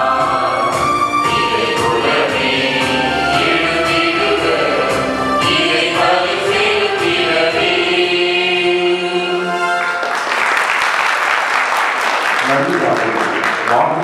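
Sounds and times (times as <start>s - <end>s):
mixed choir singing: 0.0s - 10.2s
audience applause: 9.8s - 14.0s.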